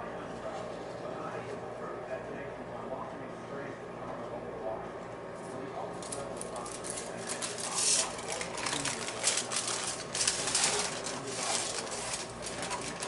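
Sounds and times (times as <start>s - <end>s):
aluminium foil crinkling: 6.0s - 13.0s.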